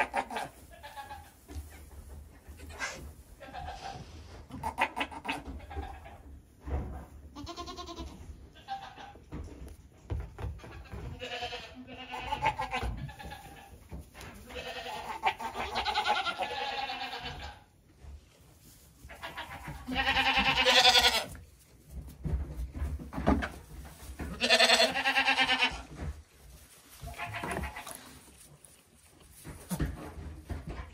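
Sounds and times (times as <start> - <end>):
goats bleating: 0.0 - 1.4, 2.6 - 6.2, 7.4 - 9.2, 10.7 - 13.8, 14.4 - 17.7, 19.1 - 21.4, 24.2 - 25.9, 27.0 - 28.4.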